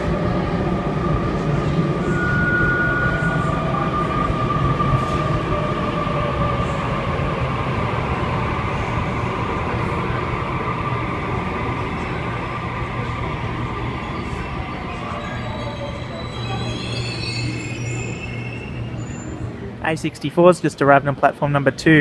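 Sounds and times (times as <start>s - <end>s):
train rolling rumble: 0.0s - 20.8s.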